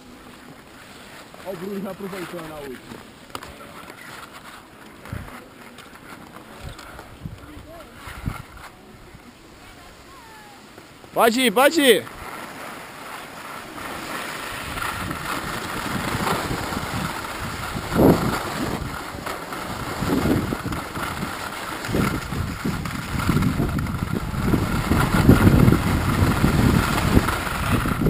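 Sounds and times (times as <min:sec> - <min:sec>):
skis scraping on packed snow: 0:00.0 - 0:28.0
wind buffeting microphone: 0:06.6 - 0:09.2, 0:14.5 - 0:28.0.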